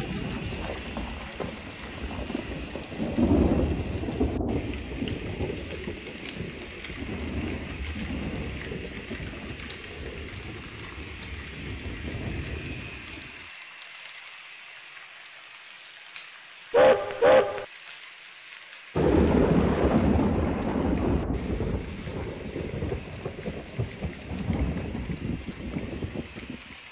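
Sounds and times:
model train rumbling: 0:00.0 - 0:17.7, 0:21.4 - 0:26.9
train horn toots: 0:16.8 - 0:17.7.

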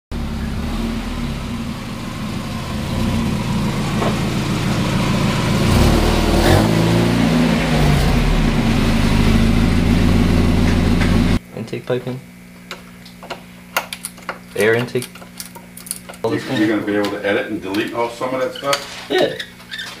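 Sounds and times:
car engine running: 0:00.1 - 0:11.4.

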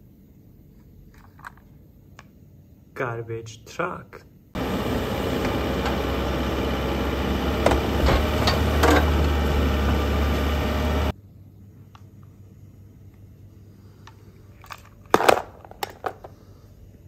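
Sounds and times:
garbage truck engine running: 0:04.6 - 0:11.1
hydraulic bin lifter: 0:04.6 - 0:11.1.

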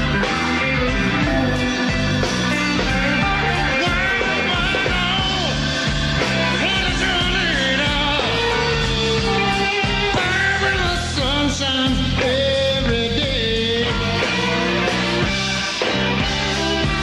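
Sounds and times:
blues band playing: 0:00.0 - 0:17.0
electric guitars: 0:00.0 - 0:17.0
man singing: 0:03.3 - 0:14.6.

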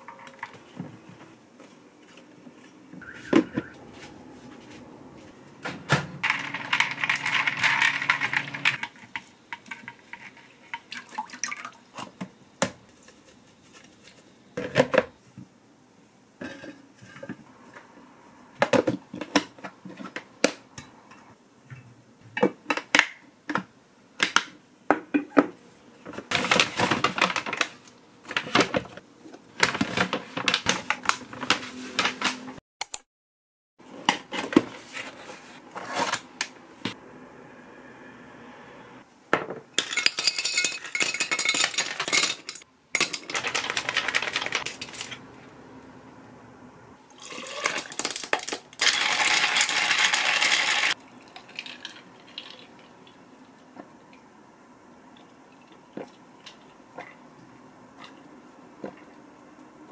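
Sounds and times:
containers and lids clattering: 0:06.2 - 0:12.2, 0:39.4 - 0:45.2
paper rustling: 0:43.3 - 0:45.2.

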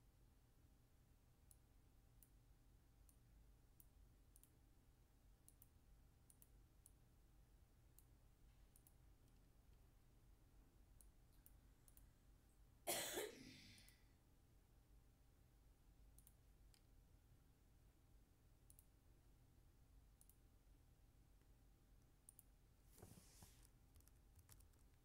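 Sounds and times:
computer mouse clicks: 0:03.8 - 0:04.6, 0:05.5 - 0:07.0, 0:08.7 - 0:09.4, 0:16.2 - 0:16.9, 0:18.7 - 0:18.9, 0:20.2 - 0:20.4, 0:22.2 - 0:25.0
person coughing: 0:12.9 - 0:13.9.

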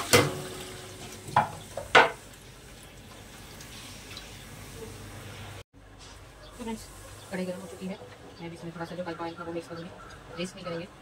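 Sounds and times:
metal utensils clattering in sink: 0:00.0 - 0:02.2
running tap: 0:00.0 - 0:04.9.

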